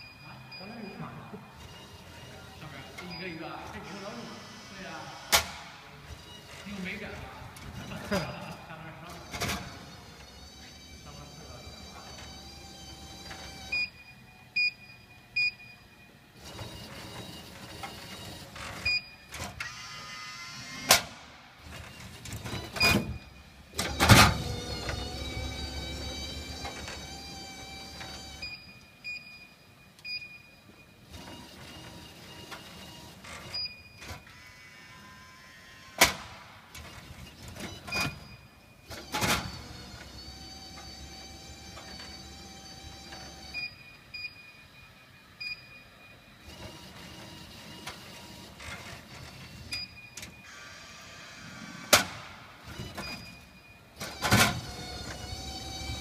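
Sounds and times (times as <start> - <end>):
short beeps: 0.0 - 1.4
vending machine lift running: 0.0 - 56.0.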